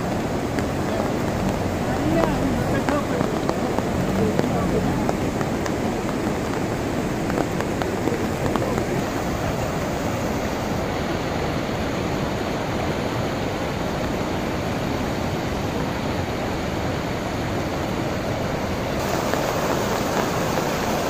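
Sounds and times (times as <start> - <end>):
turbulent river water rushing: 0.0 - 21.0.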